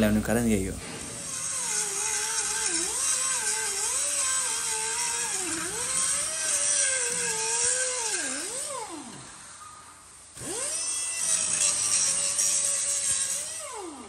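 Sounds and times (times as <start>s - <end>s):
power tool whining: 0.0s - 14.0s.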